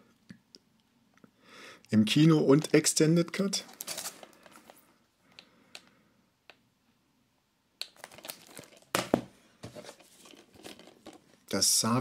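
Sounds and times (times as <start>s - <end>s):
case rustling: 3.6s - 4.8s, 8.0s - 11.4s.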